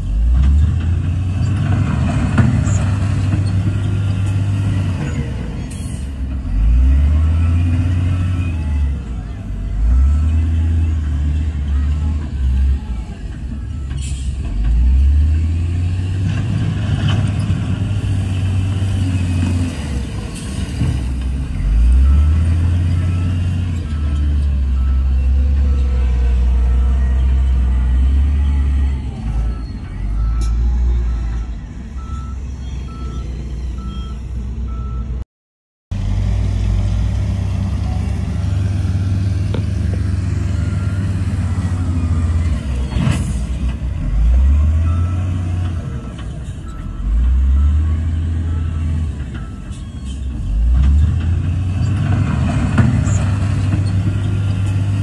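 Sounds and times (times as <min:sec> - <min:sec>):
heavy diesel engine surging: 0:00.0 - 0:35.1, 0:36.0 - 0:55.0
reversing alarm beeping: 0:21.8 - 0:35.1.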